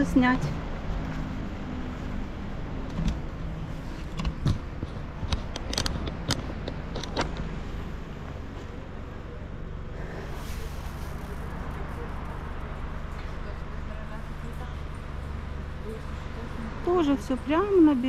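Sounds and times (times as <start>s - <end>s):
sharp clicks and knocks: 2.8s - 3.4s, 4.0s - 7.6s.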